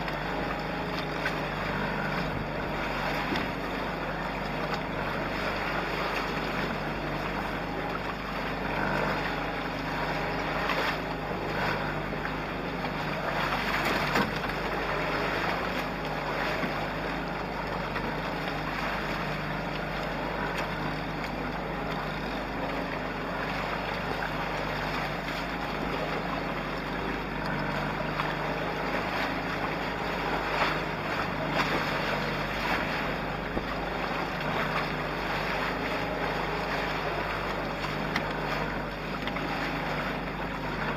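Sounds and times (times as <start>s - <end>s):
water washing along hulls: 0.0s - 40.9s.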